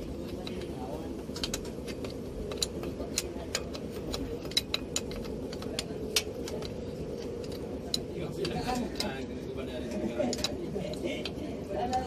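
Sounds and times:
steady background hum: 0.0s - 12.0s
sharp metallic clicks and taps: 0.2s - 9.2s.

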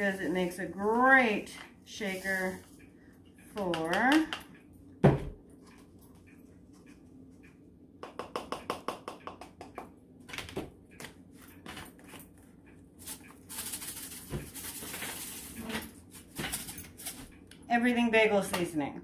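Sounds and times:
seeds rattling in a shaker: 13.0s - 17.2s.

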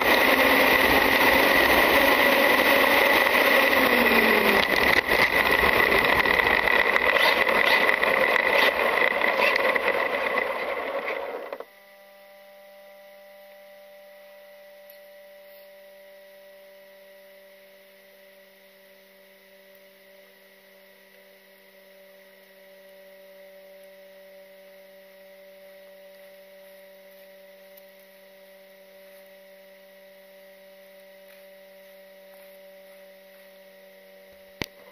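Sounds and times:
electric motor whining: 0.0s - 11.7s
gravel under tyres: 0.0s - 11.7s, 30.9s - 33.7s
faint electrical hum: 11.6s - 34.9s.

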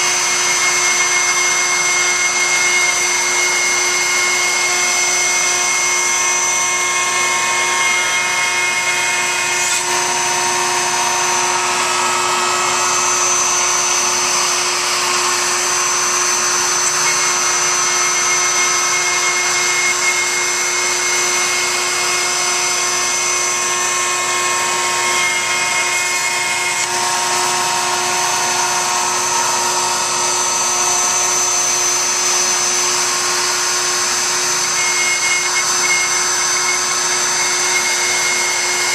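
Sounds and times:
cnc router cutting wood: 0.0s - 38.9s
high machine whines: 0.0s - 38.9s.

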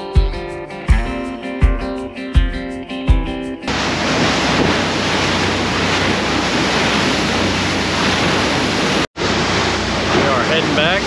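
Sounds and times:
boat wake spray rushing: 3.7s - 11.0s
low boat engine hum: 3.7s - 11.0s
wind buffeting microphone: 3.7s - 11.0s.

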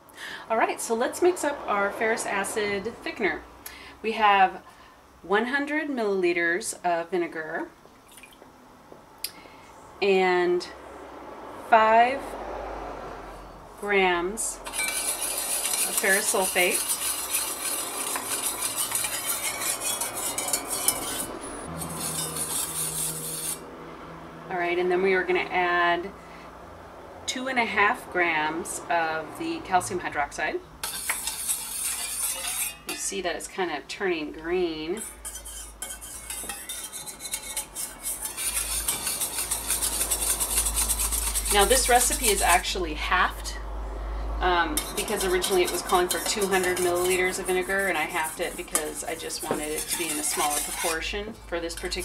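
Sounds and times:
wire whisk scraping metal bowl: 14.6s - 23.6s, 30.8s - 33.2s, 34.8s - 42.8s, 44.7s - 52.0s.

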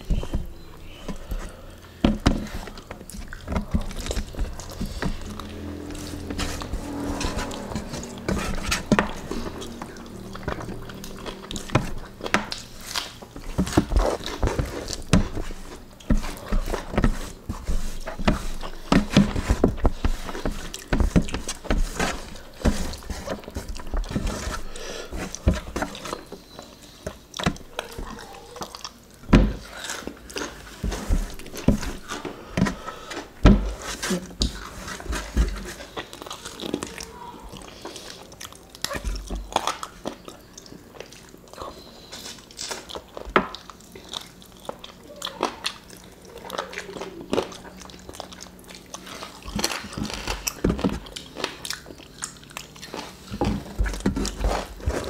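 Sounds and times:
wet chewing and lip smacking: 35.9s - 54.0s.

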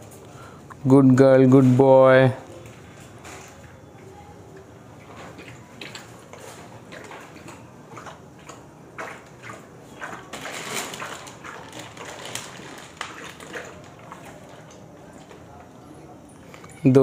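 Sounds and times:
dogs lapping water: 4.9s - 16.0s.

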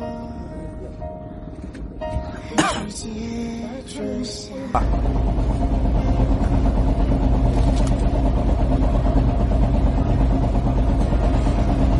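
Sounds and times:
boat engine droning: 0.0s - 11.9s.

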